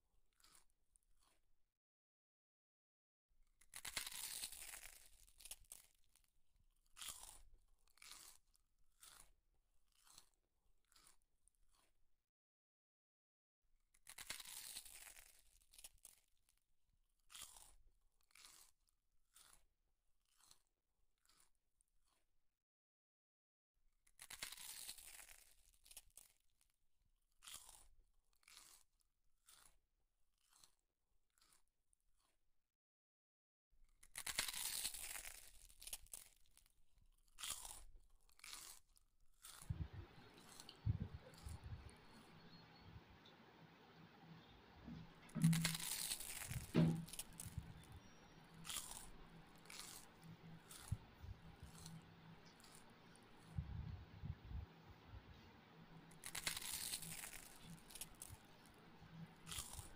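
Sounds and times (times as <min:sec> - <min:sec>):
person chewing food: 0:06.8 - 0:12.0, 0:17.3 - 0:21.6, 0:27.4 - 0:29.8, 0:34.0 - 0:42.6, 0:44.9 - 0:54.0, 0:56.1 - 0:59.9.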